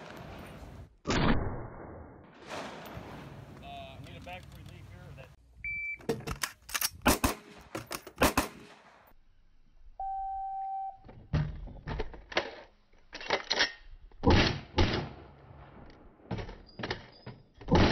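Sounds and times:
rifle shots: 7.0 - 9.1
shot timer beep: 10.0 - 11.0.

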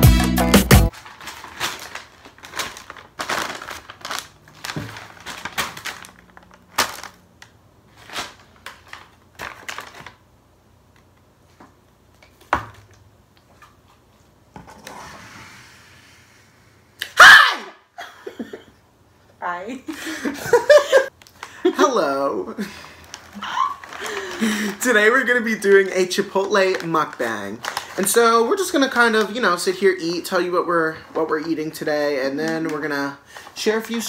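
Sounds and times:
paper bags rustling: 0.9 - 10.3, 22.6 - 34.0
high vocal shriek: 17.0 - 17.8.

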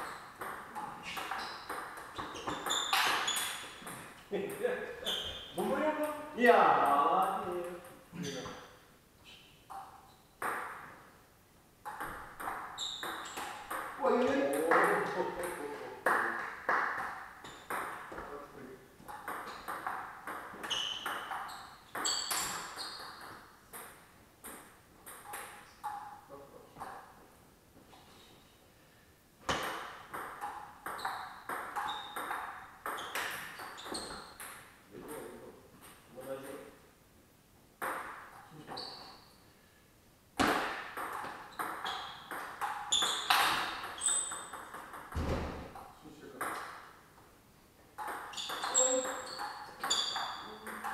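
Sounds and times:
ping pong ball clicking off paddles: 0.0 - 4.7, 9.7 - 11.0, 11.8 - 18.2, 19.0 - 26.1, 29.5 - 34.7, 40.4 - 45.2, 47.9 - 50.9
ball bouncing on table: 0.4 - 4.1, 9.7 - 11.0, 11.8 - 18.3, 19.0 - 26.0, 29.5 - 34.6, 37.8 - 38.8, 40.4 - 46.8, 48.0 - 50.9
shoe squeaks: 1.0 - 4.0, 5.0 - 5.6, 9.2 - 10.4, 12.7 - 13.7, 20.6 - 23.3, 31.0 - 32.3, 32.9 - 34.4, 38.6 - 39.4, 41.5 - 44.5, 48.3 - 50.9.

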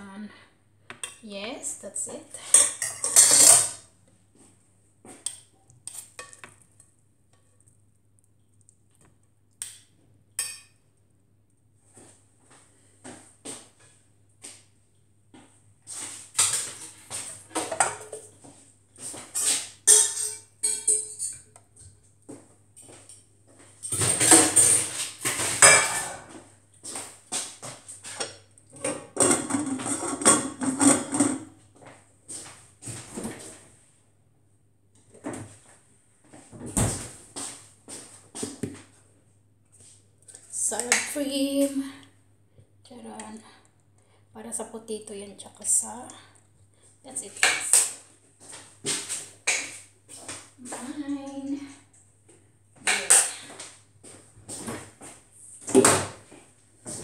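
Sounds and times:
utensils clattering: 2.4 - 3.8, 19.4 - 21.6, 23.9 - 26.3, 28.9 - 31.5
spoon clinking on strainer and plate: 2.5 - 3.8, 10.4 - 10.8, 19.9 - 21.5.

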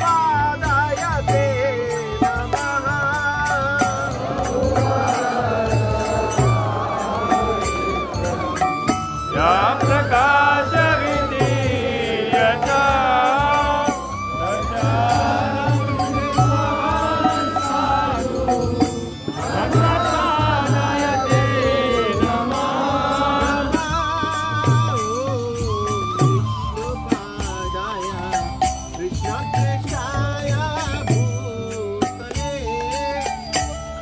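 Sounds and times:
steady rhythmic beat: 0.0 - 34.0
person chanting melodically: 3.8 - 26.0.

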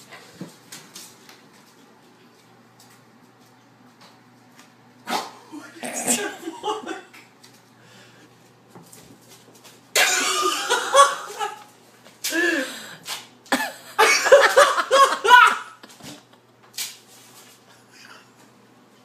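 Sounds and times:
person laughing hard: 5.5 - 7.2, 10.0 - 11.7, 13.5 - 16.4.

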